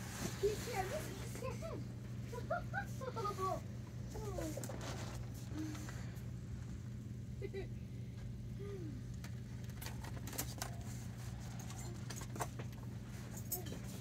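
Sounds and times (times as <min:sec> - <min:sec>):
low store hum: 0:00.0 - 0:14.0.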